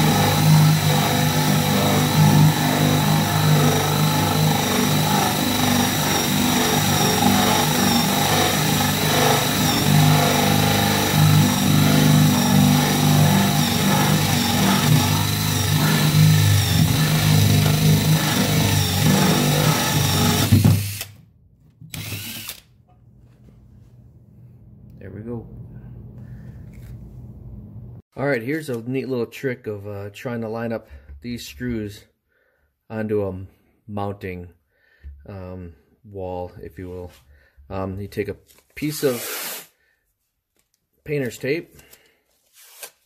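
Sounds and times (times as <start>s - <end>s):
drill bit grinding through wood: 0.0s - 21.2s, 21.9s - 22.7s, 39.0s - 39.7s
power drill whining: 0.0s - 21.2s, 21.8s - 22.8s, 39.0s - 39.7s.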